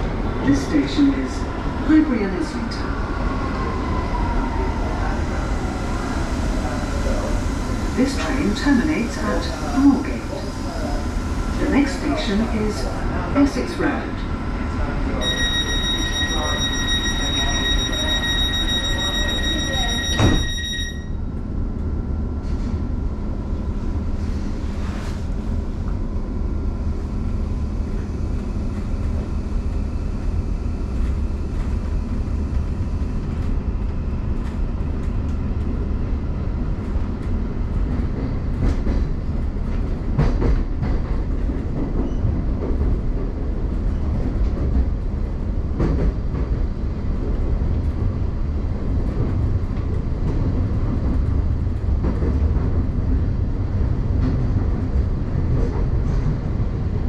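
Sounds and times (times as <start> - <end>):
train low rumble: 0.0 - 57.0
door closing warning tone: 15.2 - 21.2.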